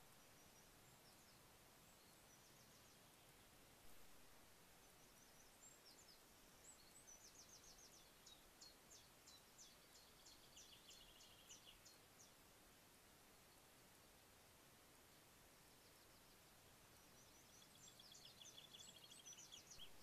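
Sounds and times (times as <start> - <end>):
songbird singing: 0.0 - 20.0
steady hiss: 0.0 - 20.0.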